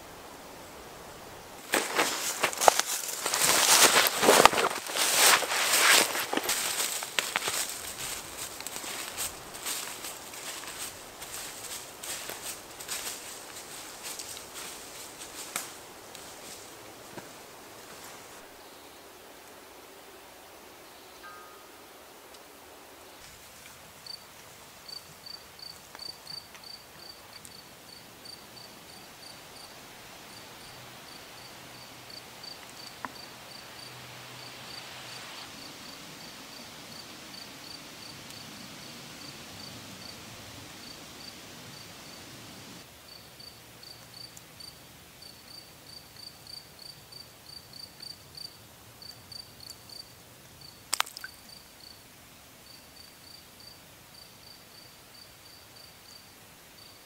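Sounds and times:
cricket chirping: 0.5 - 19.1, 20.8 - 42.3, 43.1 - 57.0
splash into pond water: 50.9 - 51.4.

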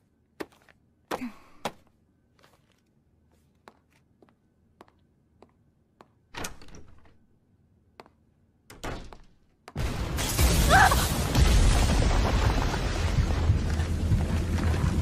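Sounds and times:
loud crash with deep rumble: 9.8 - 15.0.

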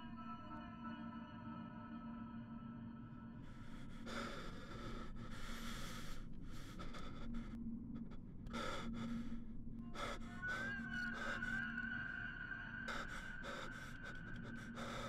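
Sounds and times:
man breathing hard: 3.4 - 11.8, 12.8 - 15.0.

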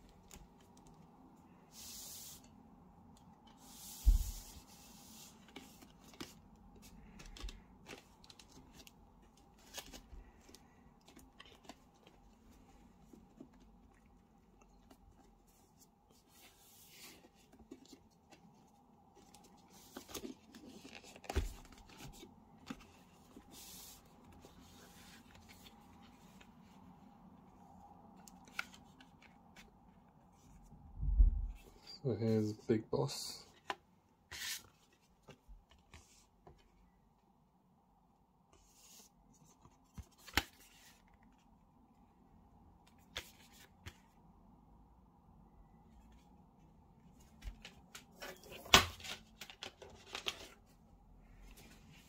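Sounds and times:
cardboard rustling and sliding: 3.5 - 8.9.

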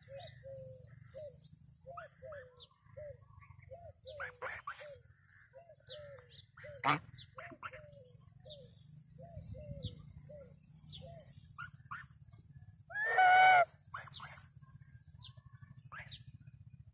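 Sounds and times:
small birds chirping: 0.0 - 16.8
goose honk: 4.2 - 4.9, 6.8 - 7.8, 12.9 - 14.4
geese calling: 6.6 - 7.8, 12.9 - 14.4.

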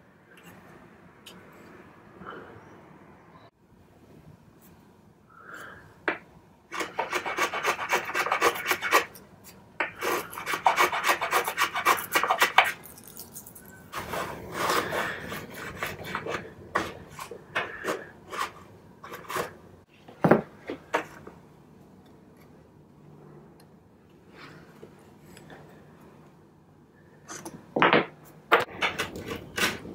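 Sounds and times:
rasp scraping across wood: 6.7 - 9.2, 9.8 - 12.8, 14.0 - 19.6.

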